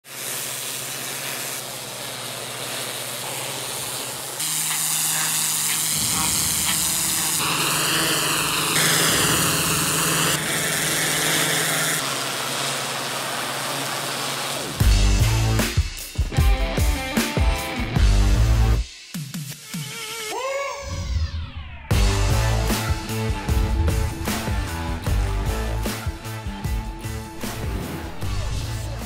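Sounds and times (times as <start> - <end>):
pressure washer spray hissing: 0.0 - 16.2
pressure washer machine humming: 0.0 - 18.8, 21.9 - 29.0.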